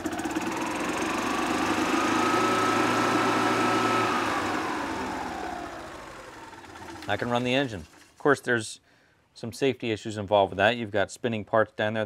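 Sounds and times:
small engine revving: 0:00.0 - 0:07.6.

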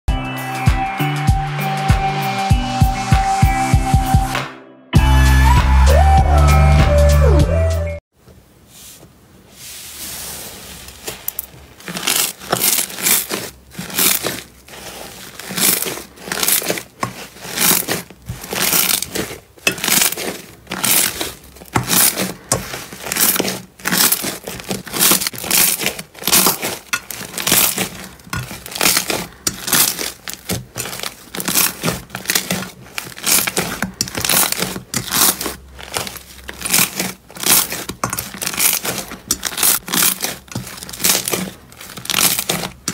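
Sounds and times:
slime squishing and crackling: 0:10.1 - 0:42.9.

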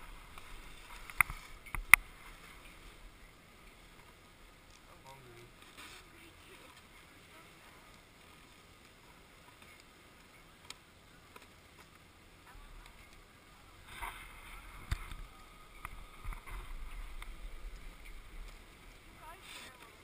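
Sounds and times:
gloves and clothing rustling: 0:16.7 - 0:20.0.

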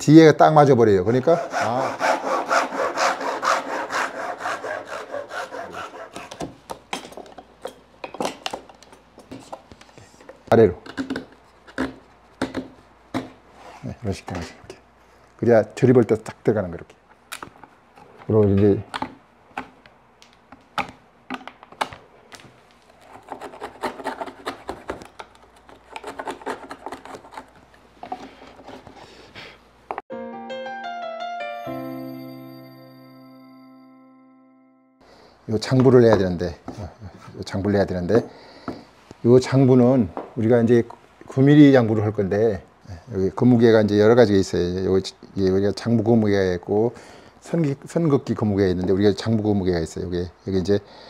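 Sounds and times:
chisel scraping strokes: 0:01.2 - 0:06.5
hand saw cutting wood: 0:01.2 - 0:06.5, 0:23.0 - 0:25.0, 0:25.9 - 0:28.9
chisel scraping wood: 0:01.2 - 0:06.6, 0:23.0 - 0:25.0, 0:25.7 - 0:29.0
chiming music: 0:30.1 - 0:35.0.

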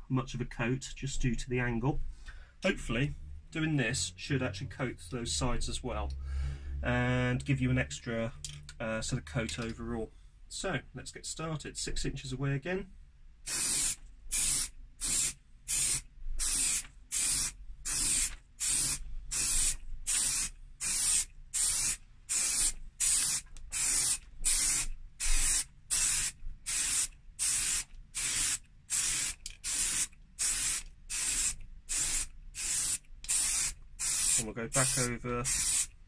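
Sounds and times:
aerosol spray can hissing: 0:13.5 - 0:35.9.

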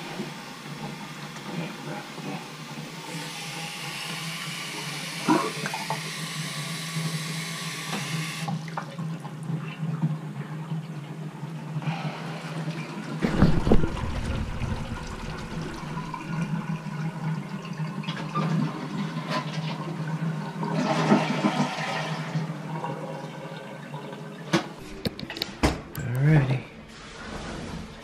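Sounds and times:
water draining through sink drain: 0:12.3 - 0:25.1.

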